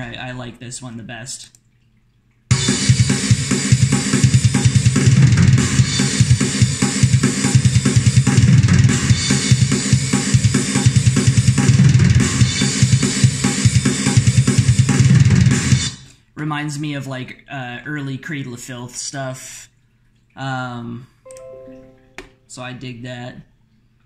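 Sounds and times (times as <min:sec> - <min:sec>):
rapid kick drum strokes: 0:02.5 - 0:16.0.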